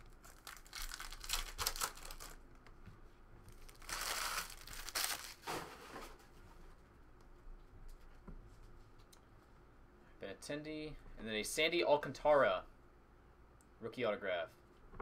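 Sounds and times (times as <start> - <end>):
foil wrappers crinkling: 0.0 - 2.4, 3.5 - 5.5.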